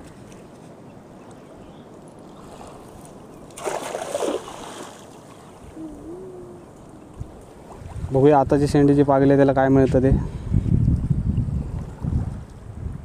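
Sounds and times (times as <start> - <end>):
waves washing: 1.9 - 8.8
cast net splashing into water: 3.5 - 5.4.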